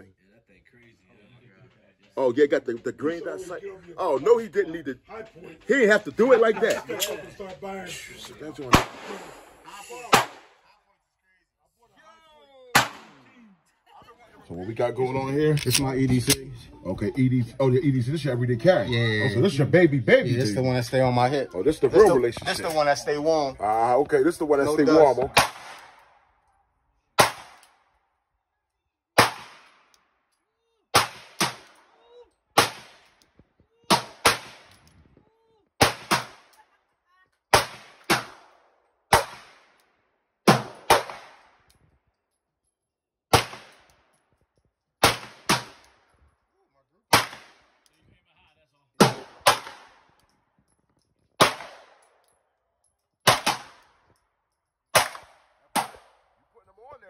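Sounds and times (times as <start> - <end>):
pistol shots with echo: 8.6 - 9.4, 10.1 - 10.6, 12.7 - 13.3, 24.9 - 26.3, 27.2 - 27.9, 29.2 - 29.9, 30.9 - 32.0, 32.6 - 34.9, 35.8 - 36.7, 37.5 - 39.8, 40.4 - 41.7, 43.3 - 44.0, 45.0 - 46.2, 47.1 - 47.9, 49.0 - 50.3, 51.4 - 52.2, 53.2 - 54.2, 54.9 - 56.4.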